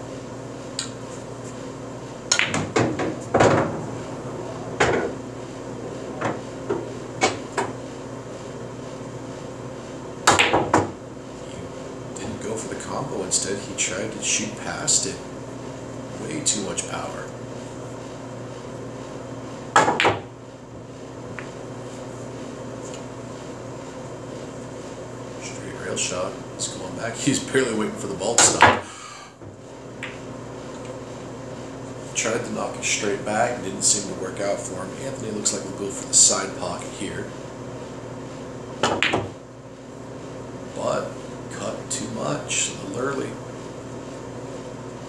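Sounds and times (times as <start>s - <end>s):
cue tip striking ball: 2.3s - 3.8s, 10.3s - 11.0s, 19.8s - 20.3s, 38.8s - 39.4s
pool balls knocking together: 2.3s - 4.0s, 10.3s - 11.0s, 19.7s - 20.3s, 38.8s - 39.4s.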